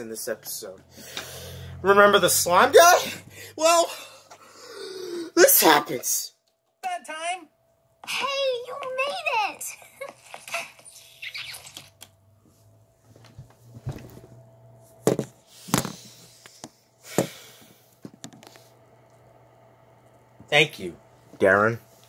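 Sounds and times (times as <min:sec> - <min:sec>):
faint steady hum: 0:00.0 - 0:22.0
phone handling knocks and bumps: 0:15.0 - 0:15.9.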